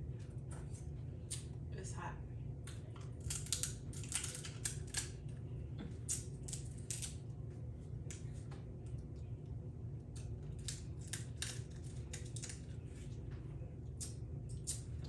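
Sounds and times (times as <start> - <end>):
steady low hum: 0.0 - 15.0
crab shells cracking: 2.6 - 5.3, 6.0 - 7.2, 10.1 - 12.8.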